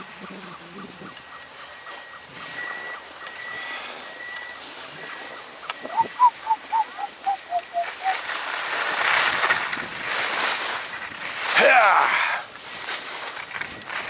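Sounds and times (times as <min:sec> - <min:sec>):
short yelping calls: 0:05.8 - 0:08.2
skis hissing on snow: 0:07.3 - 0:13.3.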